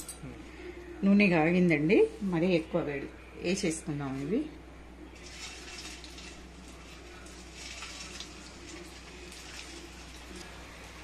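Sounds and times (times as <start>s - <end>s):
dough deep-frying in oil: 5.1s - 11.0s.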